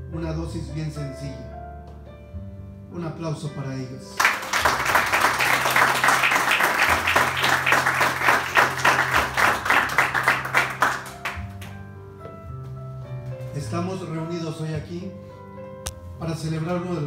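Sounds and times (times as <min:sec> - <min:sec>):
people applauding: 0:04.2 - 0:11.8.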